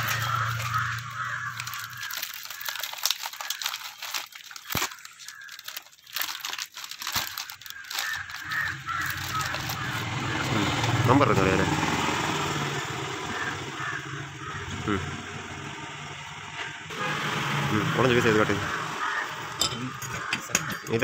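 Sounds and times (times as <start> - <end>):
plastic bag crinkling and tearing: 0.0 - 11.0.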